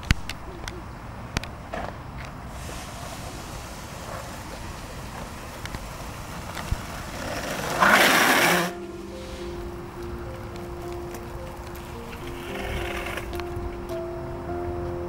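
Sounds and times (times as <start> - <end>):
skateboard wheels rolling on asphalt: 0.0 - 15.0.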